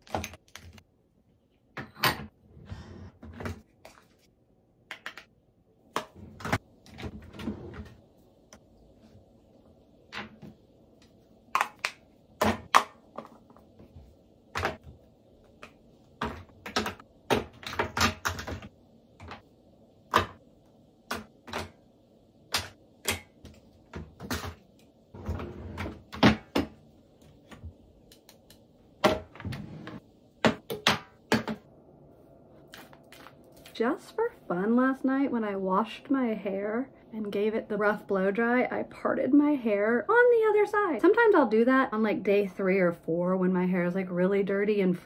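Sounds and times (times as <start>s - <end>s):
makeup items clicking and tapping: 4.9s - 5.3s, 11.0s - 13.7s.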